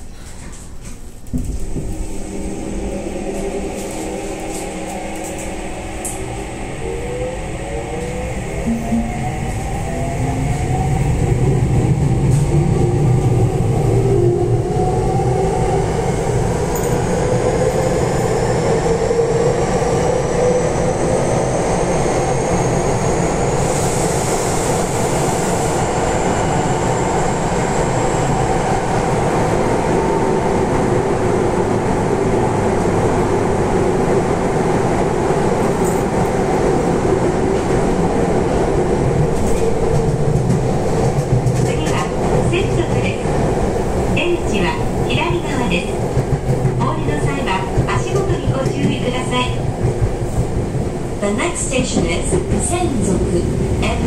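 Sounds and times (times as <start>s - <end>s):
wheels rumbling on rail: 0.0s - 54.0s.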